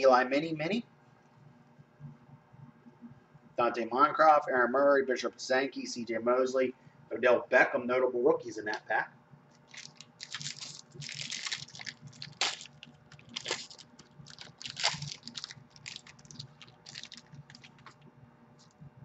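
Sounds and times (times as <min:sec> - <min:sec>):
plastic wrapper crinkling: 0:09.5 - 0:18.0
sharp wrapper snaps: 0:09.5 - 0:18.0.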